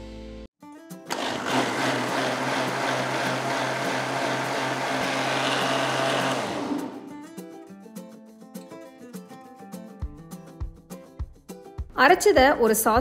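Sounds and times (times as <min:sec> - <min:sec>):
mixer grinder motor humming: 0:01.1 - 0:07.2.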